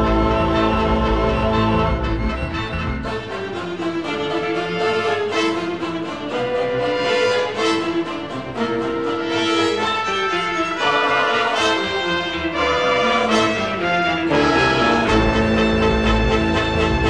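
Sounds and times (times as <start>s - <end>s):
deep bass: 0.0s - 3.2s, 14.4s - 17.0s
orchestral music sustained chords: 0.0s - 17.0s.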